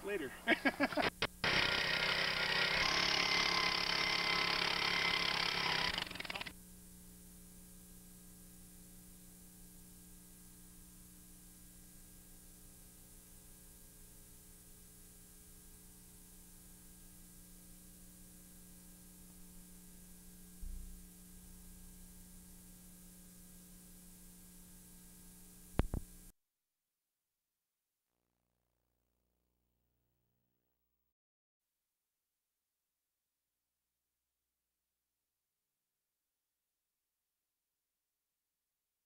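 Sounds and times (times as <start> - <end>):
videotape hiss and hum: 0.0 - 1.4, 21.0 - 26.3
power auger engine running: 0.9 - 6.6.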